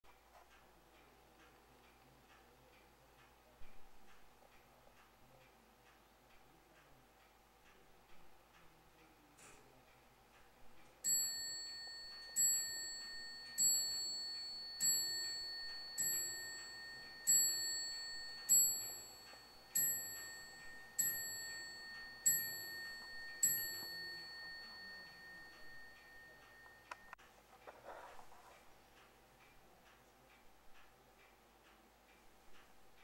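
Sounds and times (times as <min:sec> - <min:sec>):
clock ticking: 0:00.1 - 0:28.0, 0:28.6 - 0:33.0
clock bell striking: 0:11.0 - 0:27.2.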